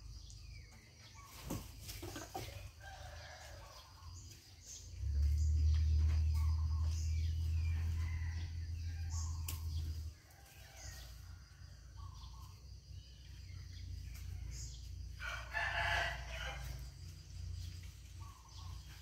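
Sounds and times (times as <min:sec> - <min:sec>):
loud crowing bird call: 0:14.5 - 0:16.9.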